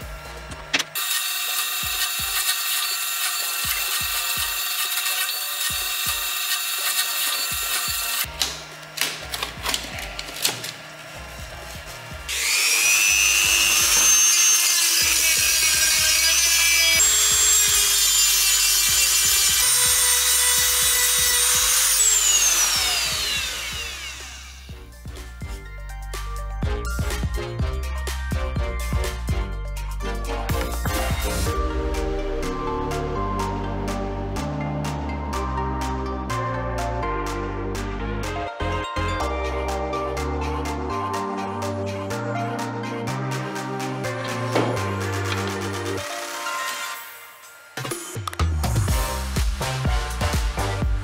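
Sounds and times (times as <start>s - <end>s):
rotary tool high whine: 0.0s - 24.9s.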